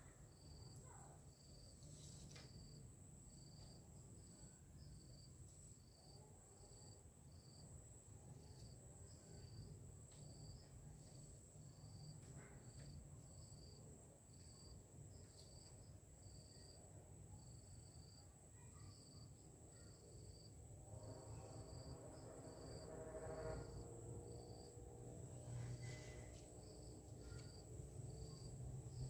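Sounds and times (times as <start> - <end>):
cricket chirping: 0.0 - 29.0
insect trill: 14.4 - 29.0.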